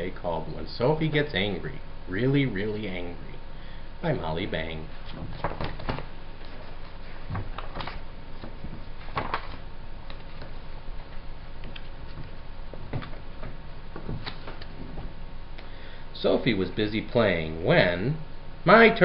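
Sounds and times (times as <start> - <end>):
background hiss: 0.0 - 19.0
book being handled: 4.9 - 15.2.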